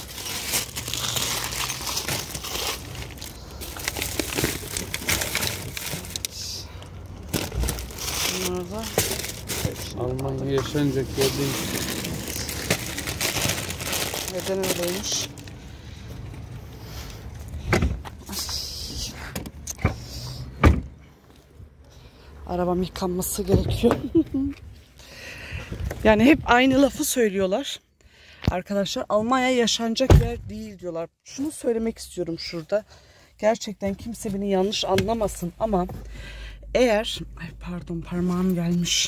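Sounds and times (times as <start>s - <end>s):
plastic packages crinkling: 0.0s - 6.5s, 7.2s - 15.6s.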